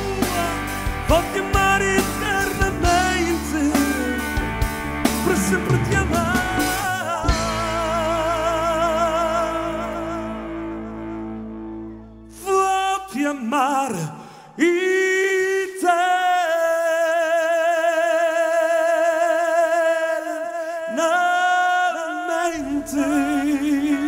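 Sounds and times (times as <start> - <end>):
band playing: 0.0 - 12.9
man singing: 0.0 - 24.0.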